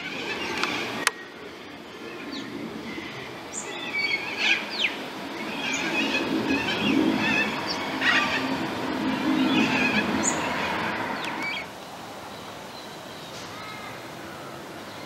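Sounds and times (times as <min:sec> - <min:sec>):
low hum of road traffic: 0:00.0 - 0:15.0
small birds chirping and whistling: 0:02.0 - 0:11.7.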